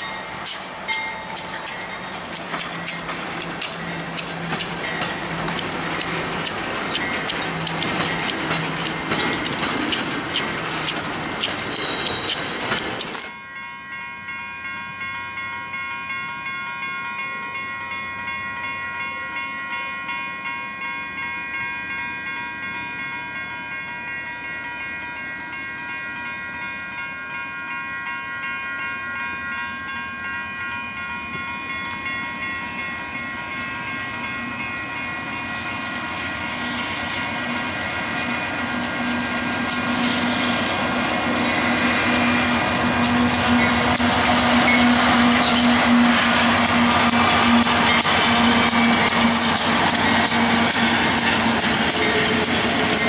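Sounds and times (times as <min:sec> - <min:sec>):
train wheels clattering on rails: 0:00.0 - 0:13.4, 0:28.9 - 0:53.0
diesel locomotive engines: 0:00.0 - 0:53.0
steady multi-tone ringing: 0:00.0 - 0:53.0.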